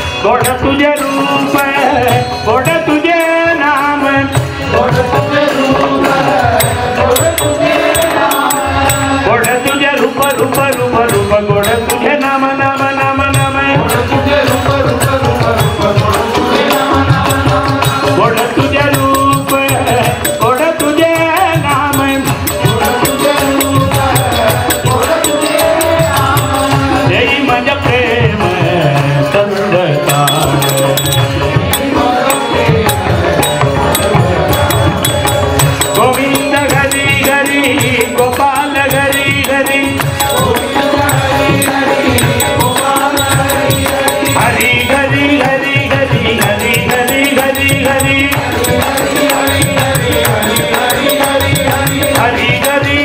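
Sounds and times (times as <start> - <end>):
harmonium: 0.0 - 53.0
percussion beat: 0.0 - 53.0
person singing a melody: 0.0 - 53.0.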